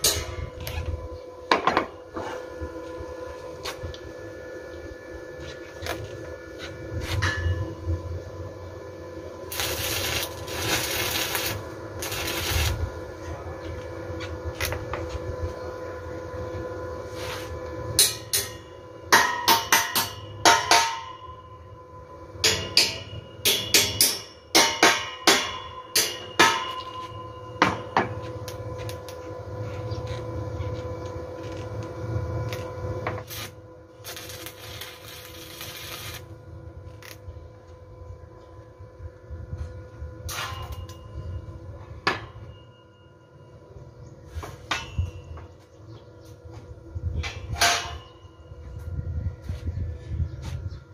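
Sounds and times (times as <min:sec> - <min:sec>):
arc welding crackling hiss: 0:09.4 - 0:13.8, 0:31.4 - 0:36.3
hammer striking steel pipe: 0:18.0 - 0:21.4, 0:22.4 - 0:28.2, 0:47.6 - 0:48.2.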